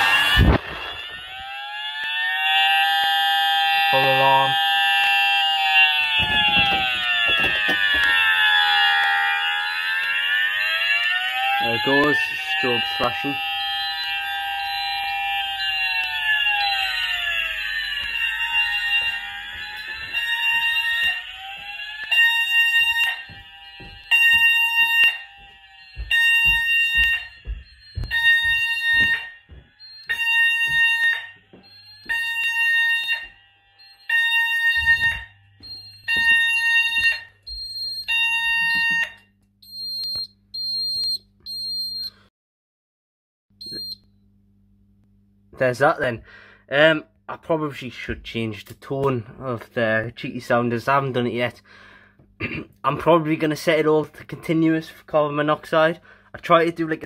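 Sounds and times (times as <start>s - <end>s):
fire alarm sounders: 0.0s - 42.3s, 43.6s - 44.1s
control panel buzzer beeps: 9.6s - 42.2s, 43.6s - 44.1s.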